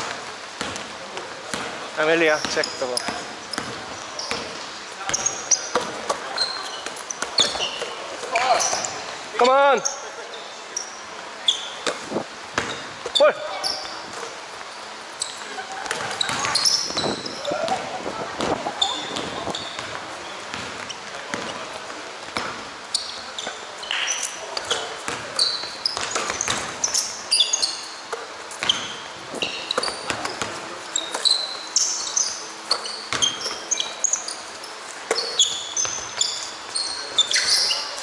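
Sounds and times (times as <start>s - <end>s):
basketball bouncing: 0.0s - 1.8s, 2.4s - 6.2s, 11.8s - 13.2s, 15.8s - 22.7s, 24.7s - 27.0s, 33.1s - 33.7s, 35.1s - 36.2s
sneakers squeaking on floor: 0.0s - 38.0s.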